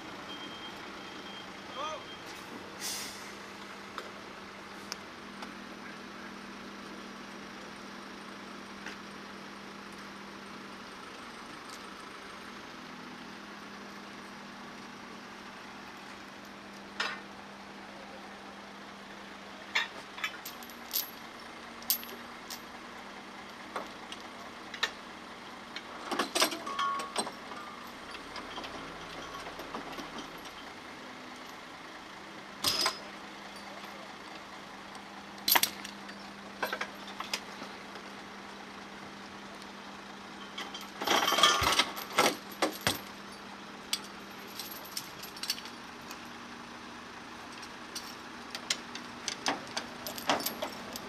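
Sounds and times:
metal chain clinking and rattling: 19.8s - 21.2s, 21.9s - 22.7s, 26.1s - 30.7s, 40.4s - 45.9s, 47.5s - 48.2s, 49.3s - 51.0s.

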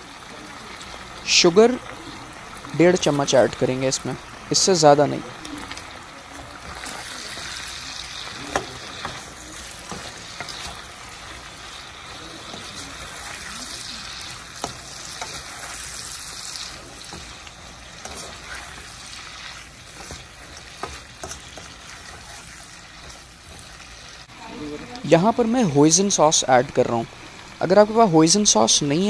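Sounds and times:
meat sizzling in a wok: 0.0s - 29.0s.

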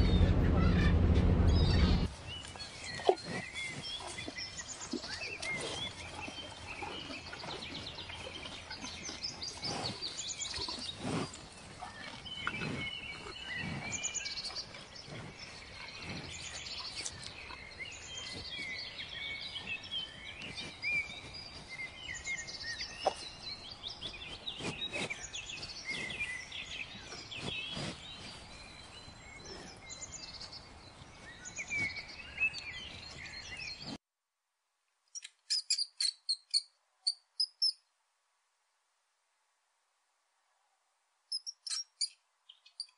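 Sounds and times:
low thumps: 0.0s - 2.1s
small birds chirping: 0.0s - 34.0s, 35.1s - 37.9s, 41.3s - 42.9s.

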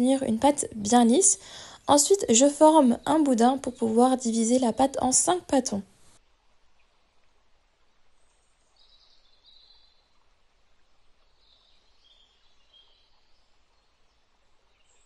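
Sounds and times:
faint background hiss: 0.0s - 15.0s.

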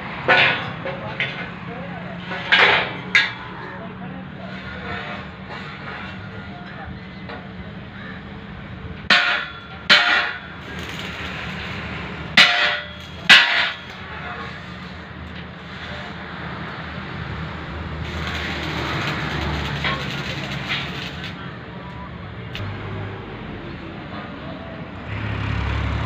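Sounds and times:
metallic clangs of struck steel: 9.1s - 11.2s, 12.4s - 14.1s.

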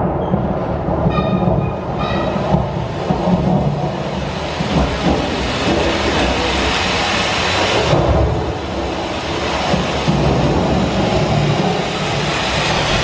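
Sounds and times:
rushing wind: 0.0s - 13.0s.

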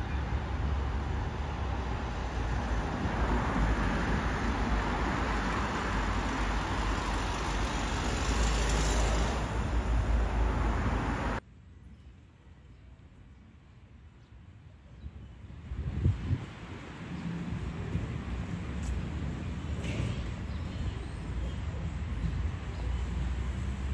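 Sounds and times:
cars driving past: 0.0s - 11.4s
faint outdoor background: 0.0s - 23.9s.

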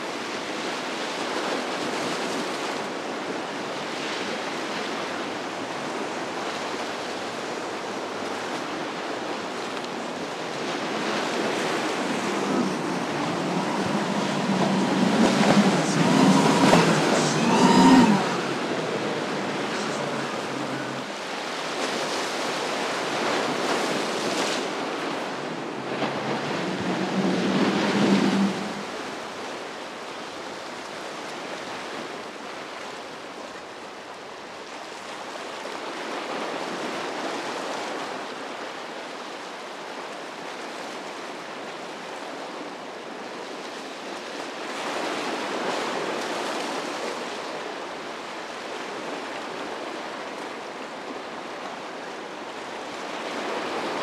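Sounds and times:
waves breaking and surf washing: 0.0s - 54.0s
wind on microphone: 9.9s - 22.2s, 23.4s - 29.6s.

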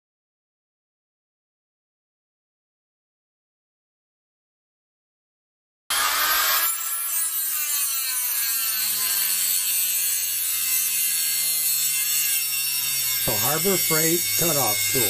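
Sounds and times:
cut-off tool grinding metal rod: 5.9s - 15.0s.

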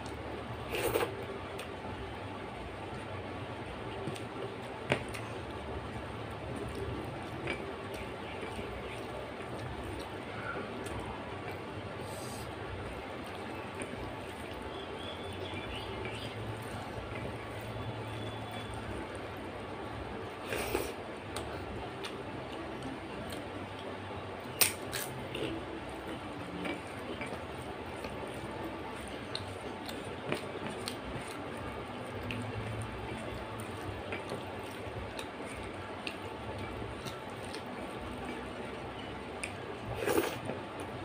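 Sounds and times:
steady low hum: 0.0s - 41.0s
wet chewing: 24.5s - 40.9s.

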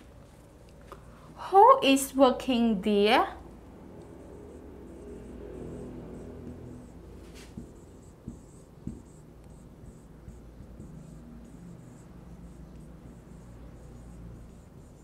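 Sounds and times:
marker writing on whiteboard: 4.0s - 15.0s.

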